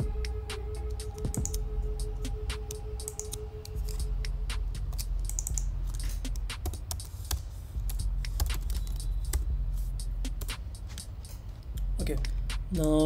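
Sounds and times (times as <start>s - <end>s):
steady low hum: 0.0s - 13.0s
keyboard keys clicking: 0.2s - 9.5s.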